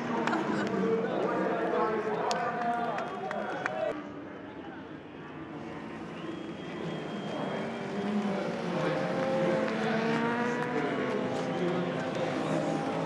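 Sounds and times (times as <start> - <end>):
motorbike engine at high revs: 6.9 - 13.0.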